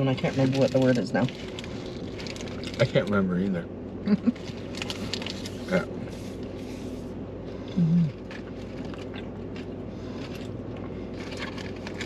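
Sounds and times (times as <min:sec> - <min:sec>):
steady low background hum: 0:00.0 - 0:12.0
low hummed voice: 0:02.8 - 0:04.4, 0:05.6 - 0:08.5.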